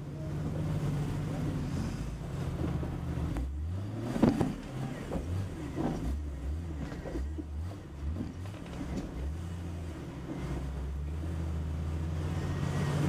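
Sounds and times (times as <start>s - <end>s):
car engine running at low revs: 0.0s - 13.0s
vehicle knocks and bumps: 2.5s - 9.4s.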